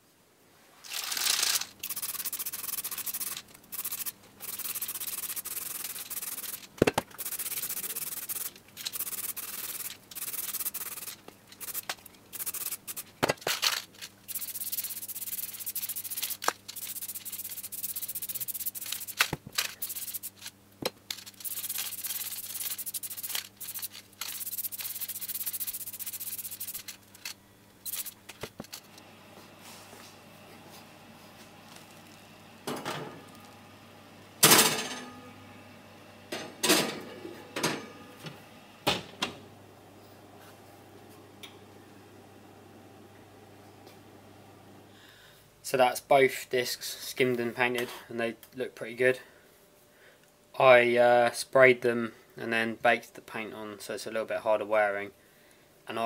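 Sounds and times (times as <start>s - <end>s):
faint steady hum: 0.0s - 56.0s
aerosol spray can hissing: 1.8s - 13.1s, 14.3s - 19.2s, 19.8s - 20.4s, 21.4s - 26.8s, 27.9s - 28.1s.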